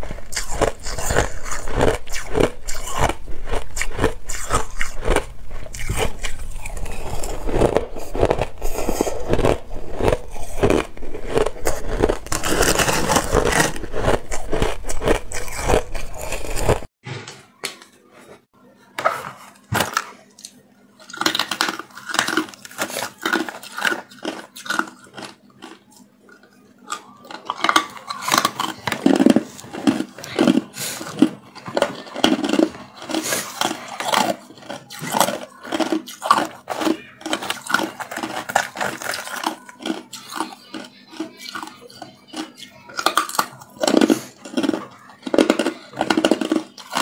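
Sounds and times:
ice crunching being chewed: 0.0s - 16.9s, 20.4s - 47.0s.

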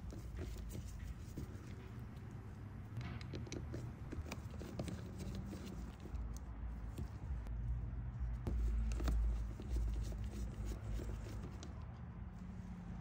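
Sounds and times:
metal clicks and taps: 0.1s - 7.2s
screwdriver turning screws: 3.0s - 7.2s.

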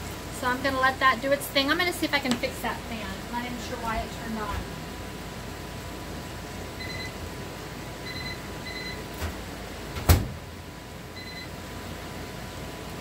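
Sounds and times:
microwave vent fan running: 0.0s - 13.0s
short electronic beeps: 6.8s - 7.1s.

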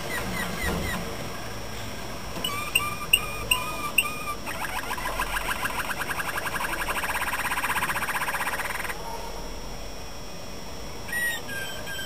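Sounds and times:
canary singing: 0.0s - 1.1s, 2.4s - 9.0s, 11.1s - 12.0s.

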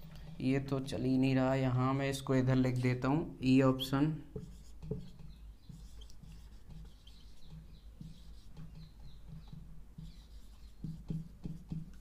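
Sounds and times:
marker squeaking on whiteboard: 4.4s - 12.0s.

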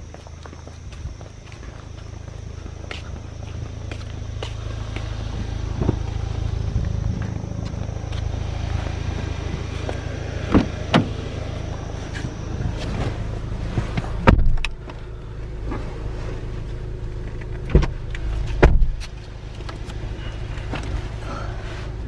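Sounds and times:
car engine idling: 0.0s - 22.0s.

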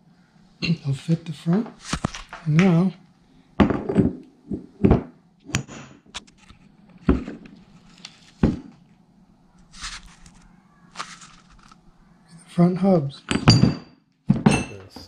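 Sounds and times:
metal knocks and clunks: 13.3s - 15.0s.

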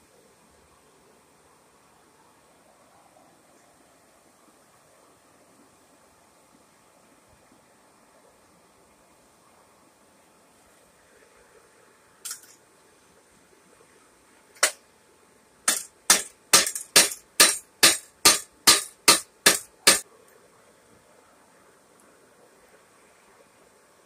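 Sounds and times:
sharp knocks: 15.7s - 20.0s.

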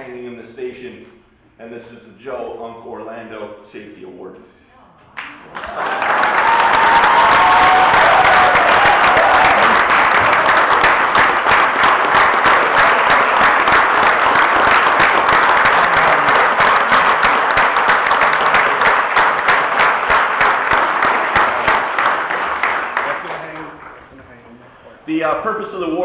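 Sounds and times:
large audience applauding: 5.2s - 24.2s.

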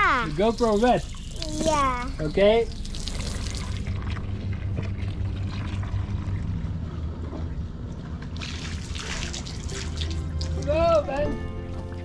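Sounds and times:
hose water running into bucket: 0.0s - 6.4s, 8.3s - 11.1s
steady low hum: 0.0s - 11.7s.

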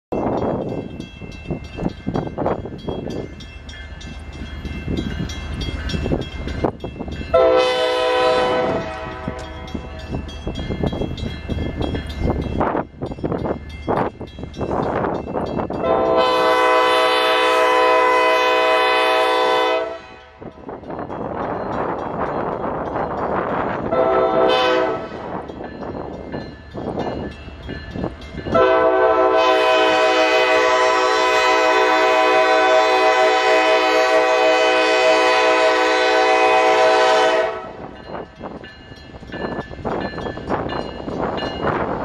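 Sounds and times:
low train rumble: 0.1s - 42.0s
locomotive air horn blasts: 7.3s - 9.6s, 15.8s - 20.4s, 23.8s - 25.3s, 28.5s - 37.9s.

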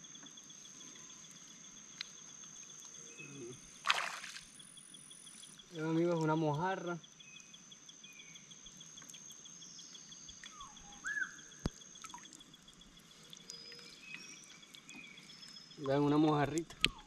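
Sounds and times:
water dripping: 11.6s - 17.0s.

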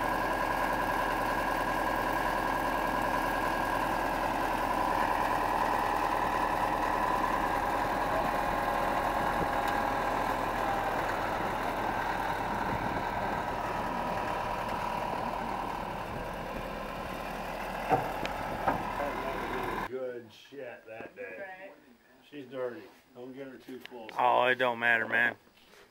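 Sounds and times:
wheel loader engine idling: 0.0s - 19.9s.

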